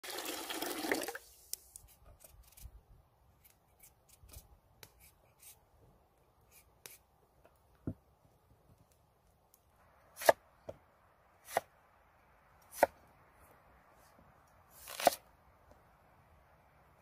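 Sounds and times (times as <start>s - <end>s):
water pouring into pot: 0.0s - 1.2s
knife cutting potatoes: 10.2s - 10.4s, 11.4s - 11.7s, 12.6s - 13.0s, 14.8s - 15.2s.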